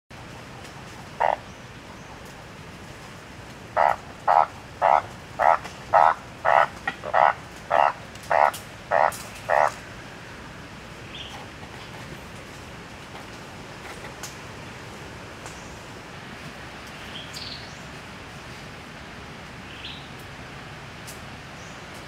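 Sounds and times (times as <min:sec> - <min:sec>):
bullfrog croaking: 0:01.2 - 0:01.4, 0:03.8 - 0:09.8.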